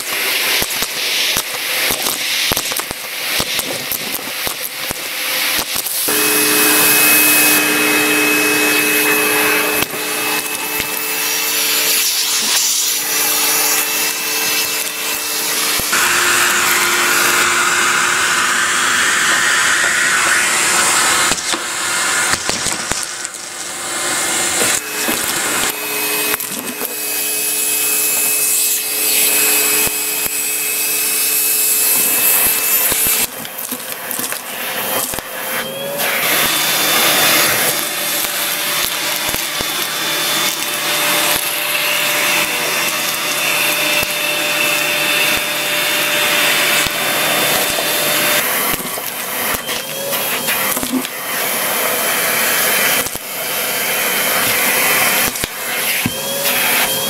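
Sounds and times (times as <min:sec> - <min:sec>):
plastic bricks clattering up hose: 0:00.0 - 0:06.1, 0:22.2 - 0:23.7, 0:31.8 - 0:51.2
vacuum cleaner running: 0:00.0 - 0:57.0.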